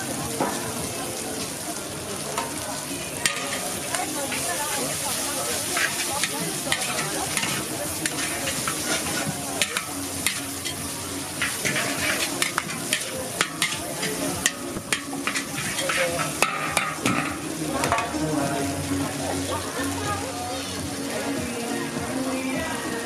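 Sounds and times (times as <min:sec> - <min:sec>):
noodles sizzling in a wok: 0:00.0 - 0:23.0
metal utensils scraping a wok: 0:03.2 - 0:18.4.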